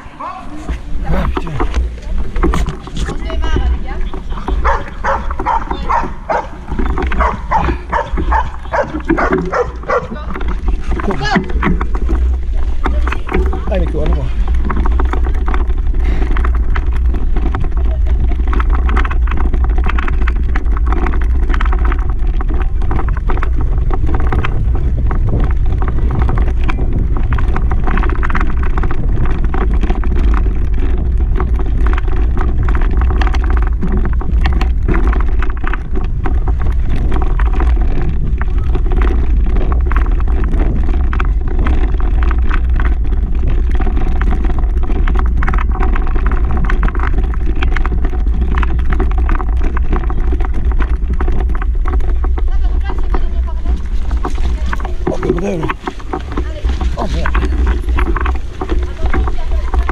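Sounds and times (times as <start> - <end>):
bike rattling and clicking: 0.0 - 59.9
wind rumble on microphone: 0.0 - 59.9.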